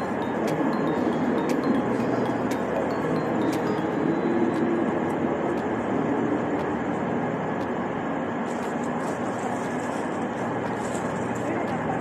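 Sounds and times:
train rumbling in station: 0.0 - 12.0.

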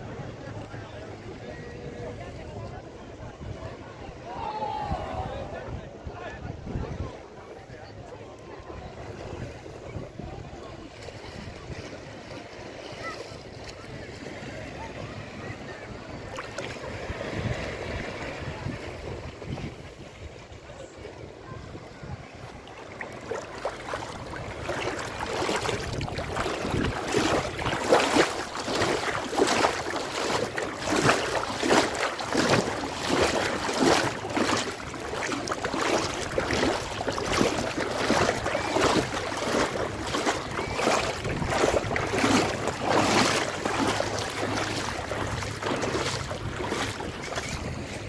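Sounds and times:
feet splashing in shallow water: 8.6 - 20.5, 21.5 - 48.0.

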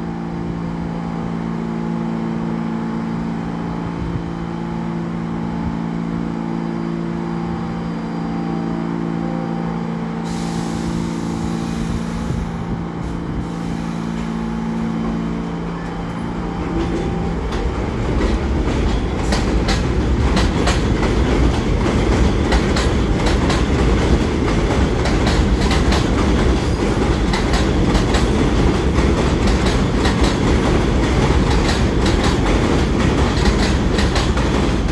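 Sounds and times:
subway train humming: 0.0 - 34.9
train wheels clacking on rail joints: 14.2 - 34.9.

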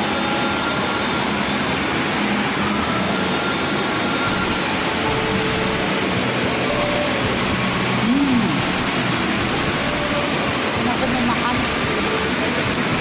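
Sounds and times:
heavy rain: 0.0 - 13.0
short hum: 2.6 - 10.3.

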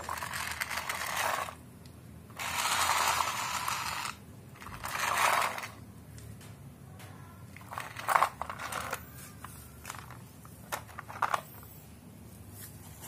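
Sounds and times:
toy truck gear motor whirring: 0.0 - 1.6, 2.3 - 5.8, 7.5 - 11.8.

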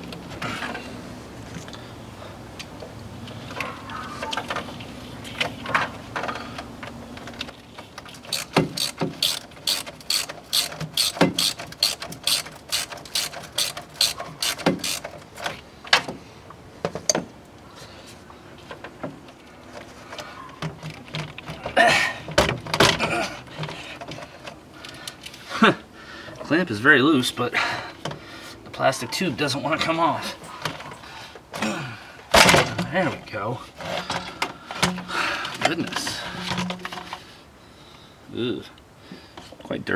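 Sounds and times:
hand ratchet clicking: 8.2 - 15.2
plastic pipe scraping and knocking: 35.7 - 37.3.

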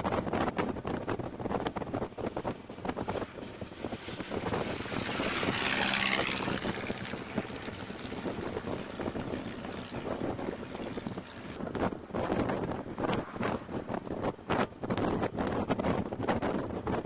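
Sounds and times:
wind rushing over microphone: 0.0 - 17.0
car engine: 1.5 - 14.4.

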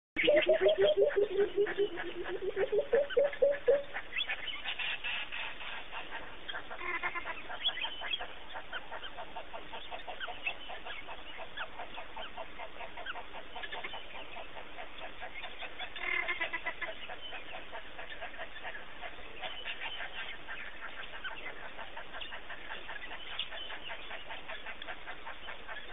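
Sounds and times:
lower louder calls: 0.2 - 5.2.

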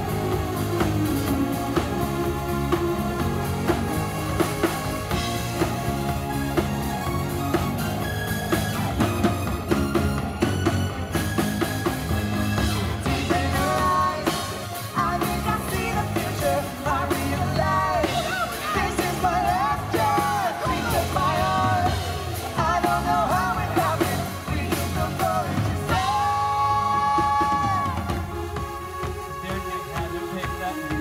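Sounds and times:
live pop-rock band playing: 0.0 - 31.0
singers' voices: 12.1 - 31.0.

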